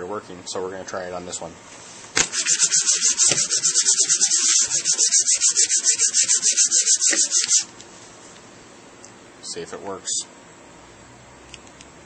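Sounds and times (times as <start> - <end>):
phone scrubbing on paper: 2.2 - 7.7.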